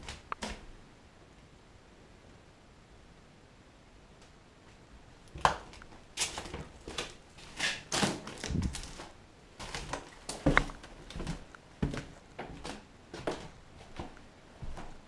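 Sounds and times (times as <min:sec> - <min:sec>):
footsteps crunching on debris: 0:05.4 - 0:15.0.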